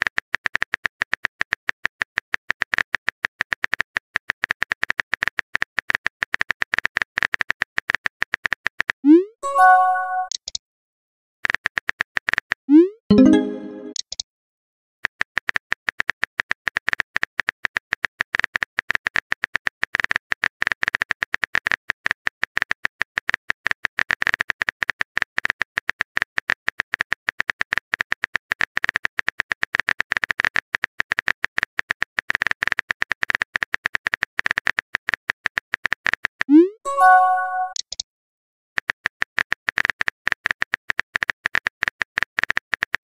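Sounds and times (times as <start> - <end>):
chat message pop: 9.4 - 10.4, 13.1 - 14.0, 36.5 - 37.9.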